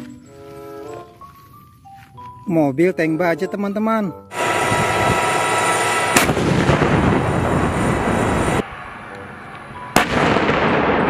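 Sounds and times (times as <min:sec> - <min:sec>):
cannon blast with sharp crack: 0:05.9 - 0:08.3, 0:10.0 - 0:11.0.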